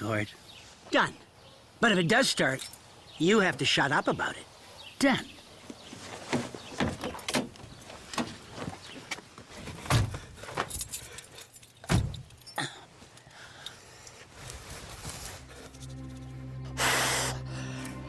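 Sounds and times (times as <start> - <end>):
keys jangling: 10.6 - 12.6.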